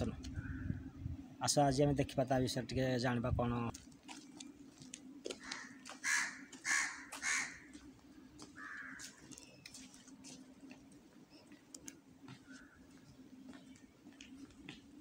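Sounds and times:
low steady hum: 0.0s - 6.6s
crow cawing: 0.4s - 0.8s, 5.3s - 7.8s, 8.5s - 9.2s, 12.4s - 13.0s
faint footsteps: 3.7s - 15.0s.

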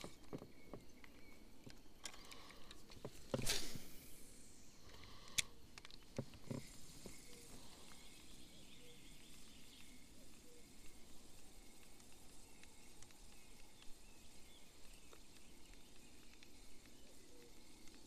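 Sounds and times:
fishing rod cast swish: 3.4s - 4.0s.

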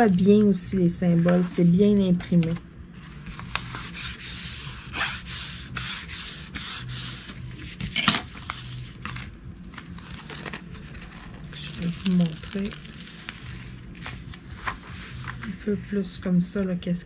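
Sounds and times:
plastic film rustling: 7.2s - 15.7s
canvas scraping: 9.8s - 16.1s.

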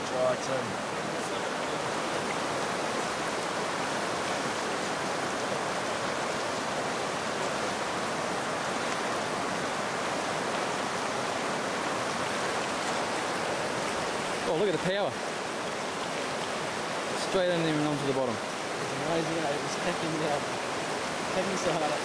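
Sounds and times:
water rushing over rocks: 0.0s - 22.0s.

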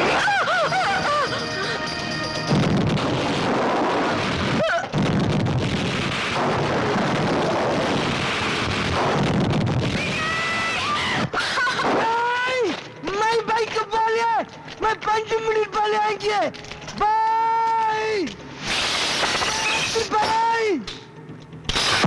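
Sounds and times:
dramatic music: 0.0s - 4.6s
explosions: 2.5s - 12.1s
woman screaming: 10.0s - 12.6s
people crying out: 10.0s - 12.8s.

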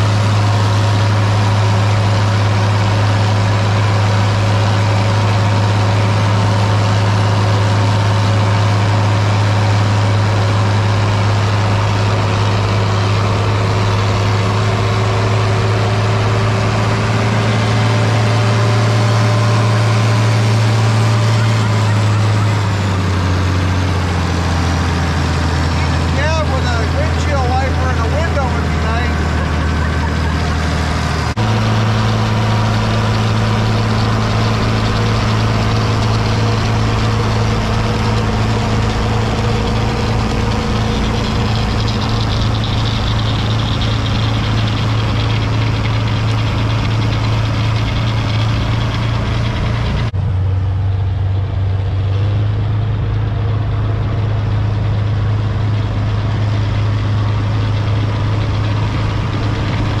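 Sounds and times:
snow blower throwing snow: 0.0s - 50.1s, 53.4s - 60.0s
tractor diesel engine running: 0.0s - 60.0s.

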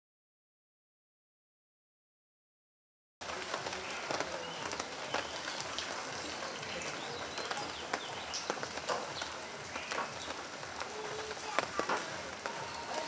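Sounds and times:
steady outdoor hiss: 3.2s - 13.0s.

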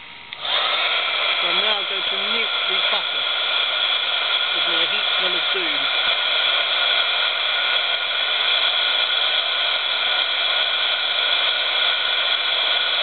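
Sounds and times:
heat gun blowing air: 0.3s - 13.0s.

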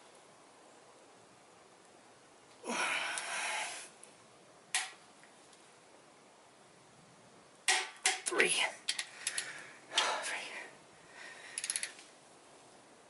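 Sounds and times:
person exhaling hard: 2.6s - 4.0s
torque wrench clicking: 8.9s - 9.5s, 11.5s - 12.0s.

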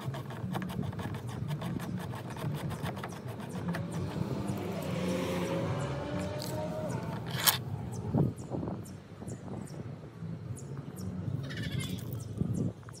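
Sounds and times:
car passing by: 4.0s - 7.5s.

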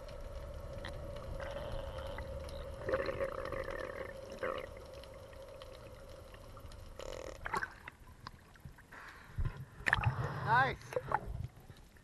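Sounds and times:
faint underwater hum: 0.0s - 12.0s
gurgling bubbly bursts: 2.8s - 4.8s.

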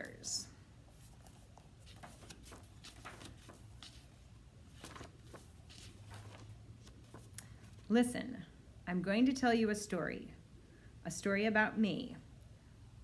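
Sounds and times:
low steady hum: 0.0s - 13.0s
book pages rustling: 0.9s - 7.9s.

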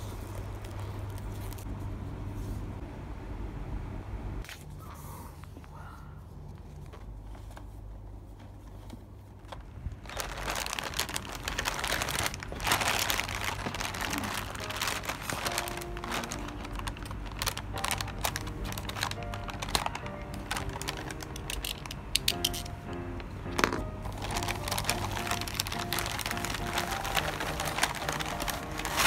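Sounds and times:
plastic bag crinkling: 0.0s - 1.7s, 9.2s - 22.8s, 23.4s - 29.0s
faint music with held notes: 10.1s - 29.0s.

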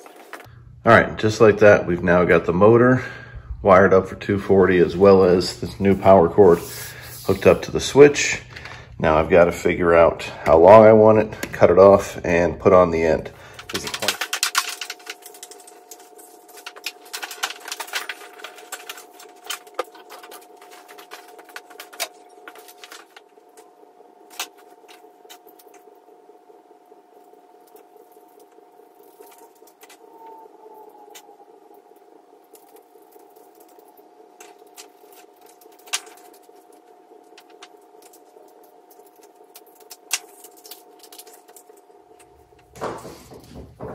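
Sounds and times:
steady faint hum: 0.0s - 43.9s
tools and cable rattling: 13.6s - 23.6s.

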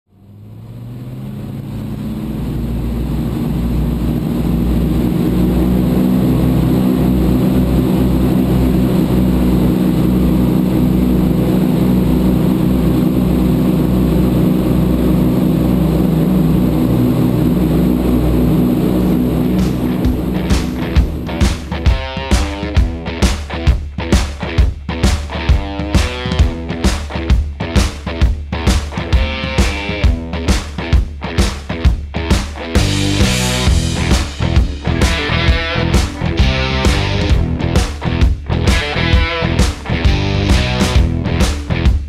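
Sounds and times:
aircraft piston engines droning: 0.1s - 23.2s, 32.6s - 41.7s.

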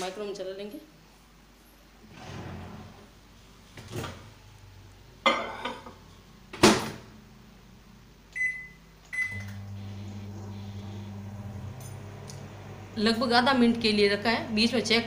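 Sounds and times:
microwave oven humming: 6.4s - 15.0s
keypad beeps: 8.4s - 9.6s.

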